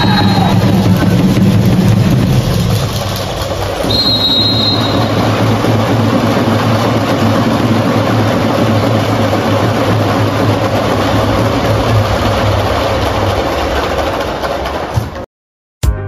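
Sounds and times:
sports hall hum: 0.0 - 15.3
referee's whistle blast: 3.8 - 5.2.

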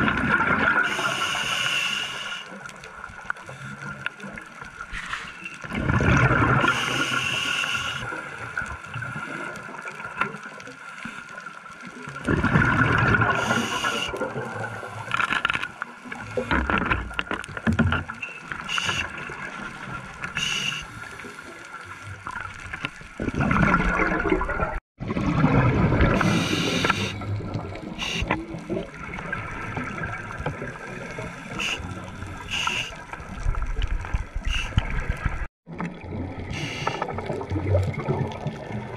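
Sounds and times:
exhaled bubbles gurgling: 0.0 - 1.5, 5.6 - 10.6, 11.8 - 15.1, 18.4 - 38.9
regulator inhalation hiss: 0.9 - 2.5, 6.7 - 8.0, 13.4 - 14.1, 18.6 - 19.1, 20.4 - 21.0, 26.2 - 27.2, 28.0 - 28.3, 31.5 - 33.0, 36.6 - 37.0.

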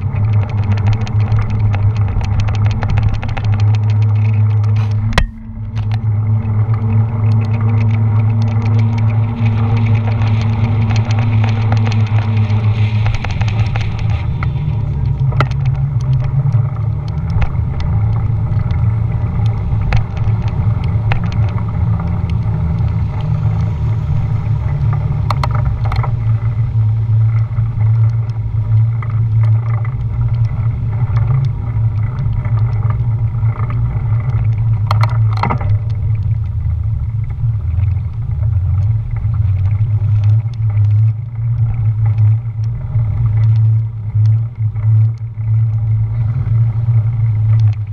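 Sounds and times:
sharp clicks and rattles: 0.0 - 47.9
wind and road noise rumble: 0.0 - 47.9.

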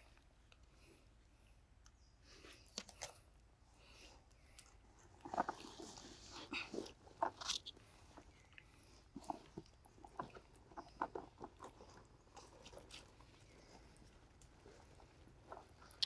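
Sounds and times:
monkeys chewing and smacking: 4.3 - 16.0.

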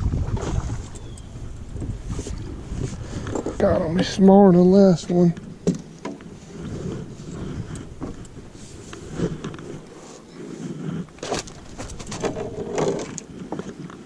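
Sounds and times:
landing net rustling: 5.7 - 13.8.

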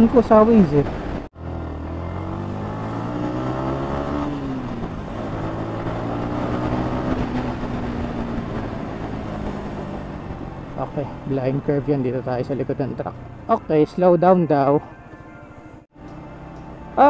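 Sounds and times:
rush of riding noise: 0.0 - 13.8
motorcycle engine running: 0.8 - 13.8.

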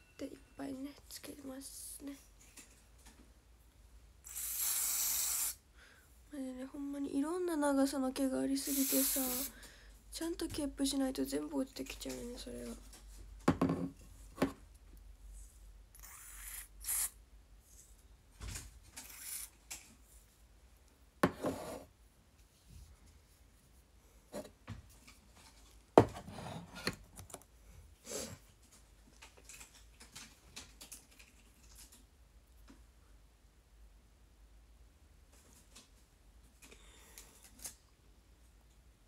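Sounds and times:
hissing spray: 4.3 - 5.6, 8.6 - 9.5.

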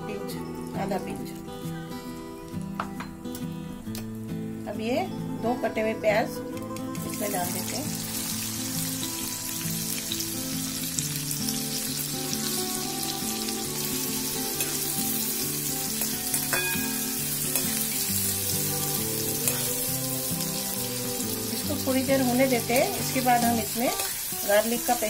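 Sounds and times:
onions sizzling in oil: 7.0 - 25.0.

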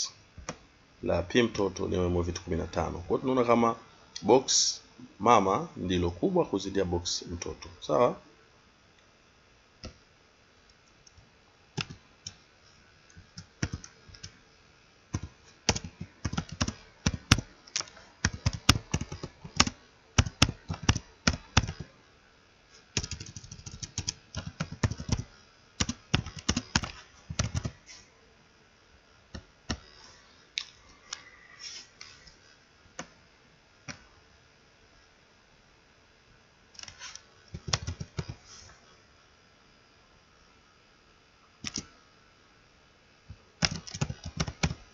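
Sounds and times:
keyboard typing: 11.8 - 12.4, 13.2 - 14.3, 15.1 - 21.9, 22.9 - 27.8, 36.8 - 38.4, 41.6 - 41.9, 43.6 - 44.8.

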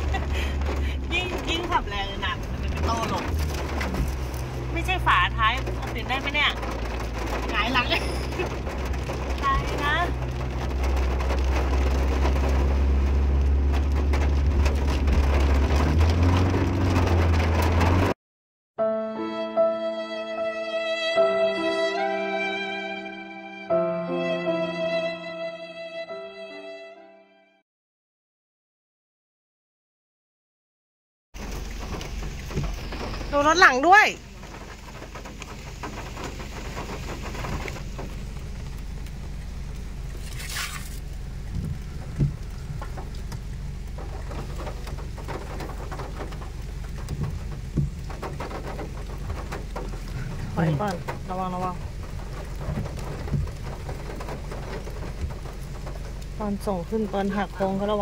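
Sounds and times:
car engine droning: 0.0 - 18.2, 31.4 - 58.0
rain pattering on a car: 0.0 - 18.2, 31.4 - 58.0.

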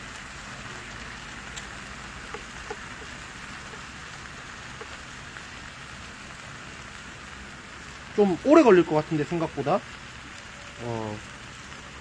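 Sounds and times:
meat sizzling on a griddle: 0.0 - 12.0
small pops and ticks: 0.2 - 6.1.

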